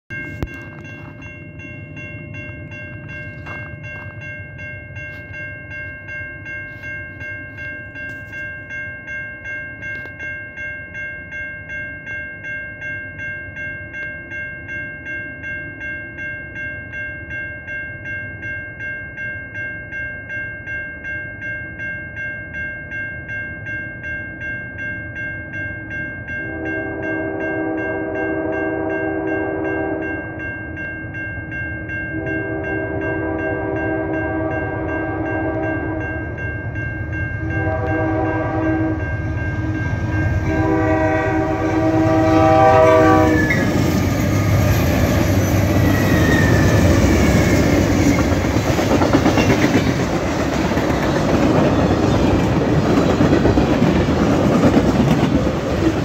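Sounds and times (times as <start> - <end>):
level crossing bell ringing: 0.1 - 48.8
freight train rumble: 26.2 - 56.0
train horn long chord: 26.4 - 30.3, 32.1 - 36.3, 37.4 - 43.8.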